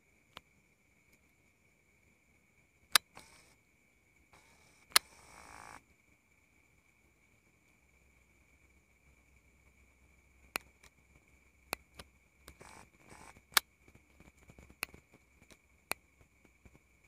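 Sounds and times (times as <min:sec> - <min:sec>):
night insects droning: 0:00.0 - 0:17.0
sharp clicks: 0:02.9 - 0:03.6, 0:04.4 - 0:05.8, 0:10.5 - 0:11.0, 0:11.7 - 0:16.8.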